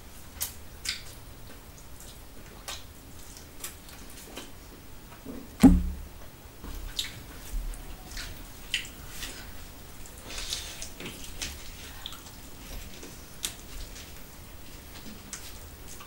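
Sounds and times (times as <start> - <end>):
wet chewing and smacking: 0.4 - 1.2
sharp thump: 5.6 - 6.2.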